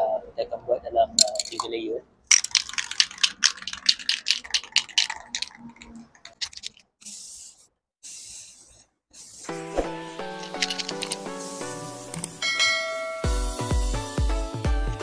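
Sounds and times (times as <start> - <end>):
spray can ball rattling: 1.2 - 1.7, 2.3 - 13.6
spray paint hissing: 2.3 - 14.3.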